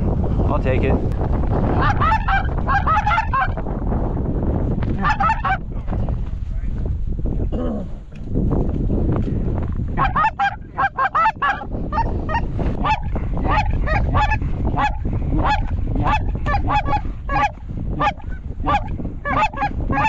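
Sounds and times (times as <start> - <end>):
wind on microphone: 0.0 - 20.0
goose honks: 1.8 - 3.6, 5.0 - 5.6, 10.0 - 20.0.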